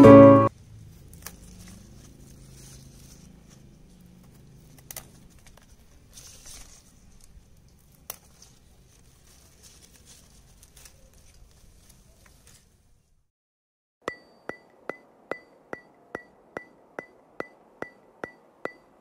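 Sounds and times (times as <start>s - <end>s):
leaves rustling: 0.5s - 13.2s
stems snapping: 1.0s - 3.2s, 4.0s - 12.7s.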